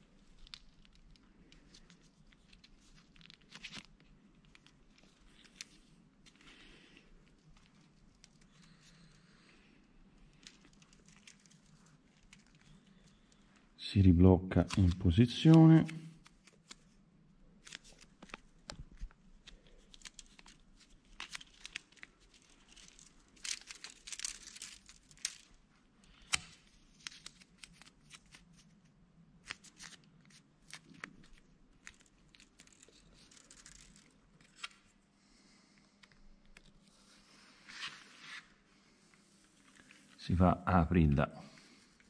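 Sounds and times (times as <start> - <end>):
tape tearing and rustling: 17.6 - 28.7, 29.4 - 34.9.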